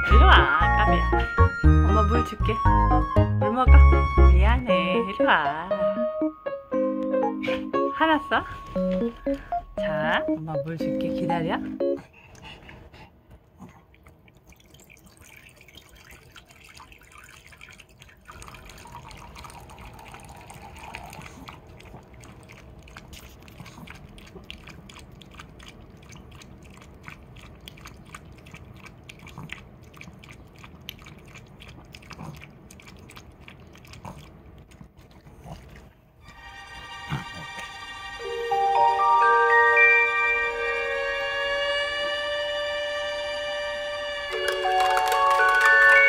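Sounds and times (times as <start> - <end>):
dog lapping water from bowl: 13.6 - 36.1.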